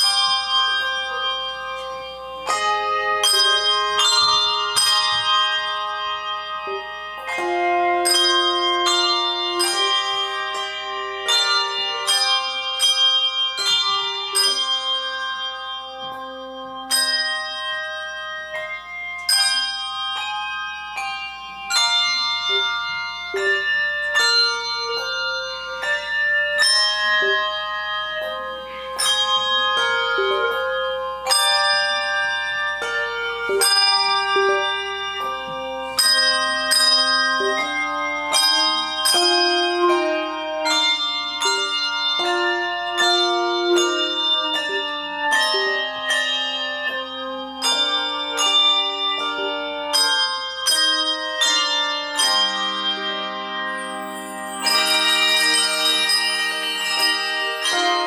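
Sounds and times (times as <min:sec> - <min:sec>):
handbell choir playing: 0:00.0 - 0:58.0.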